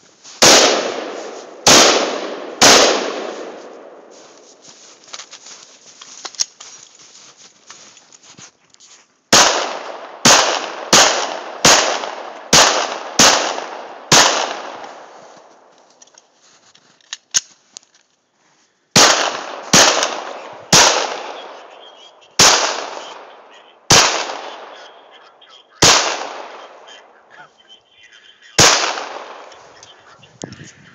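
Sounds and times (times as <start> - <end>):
gunshots with echo: 0.4 - 4.1, 9.3 - 15.1, 19.0 - 30.3.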